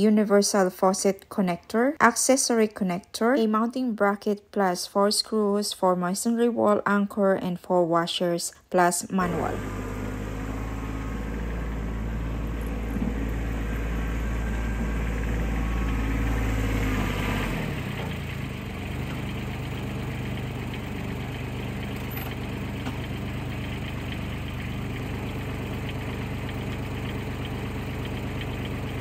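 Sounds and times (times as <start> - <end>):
utility vehicle engine idling: 9.2 - 29.0.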